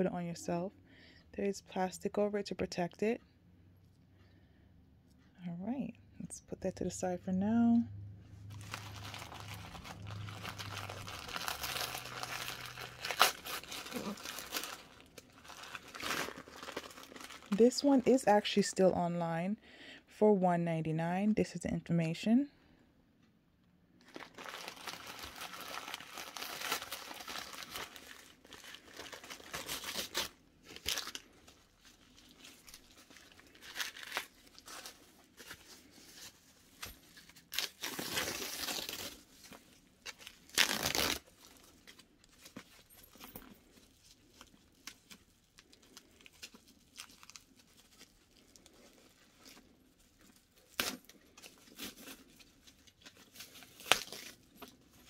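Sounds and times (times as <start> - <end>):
packaging crinkling: 8.4 - 17.8, 24.0 - 55.0.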